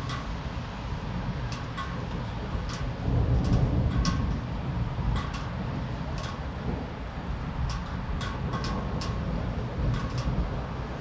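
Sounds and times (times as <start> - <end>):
steady rain: 0.0 - 11.0
thunder rumbling: 2.2 - 7.0.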